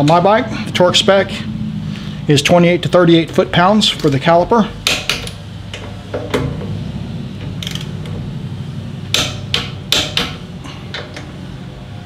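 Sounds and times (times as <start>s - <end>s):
torque wrench clicking: 7.6s - 8.0s.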